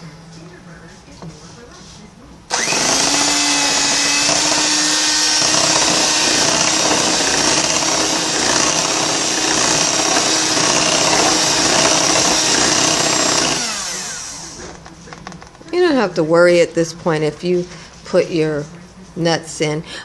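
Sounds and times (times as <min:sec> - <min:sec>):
electric hand mixer whirring: 0:02.5 - 0:14.7.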